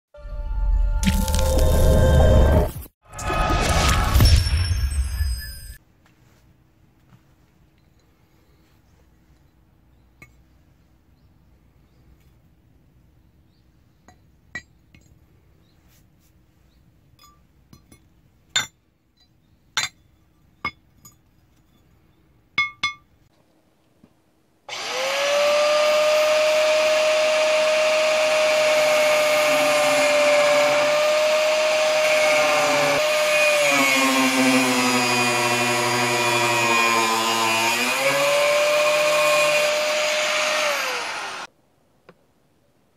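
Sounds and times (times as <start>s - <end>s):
angle grinder cutting steel: 24.7s - 41.5s.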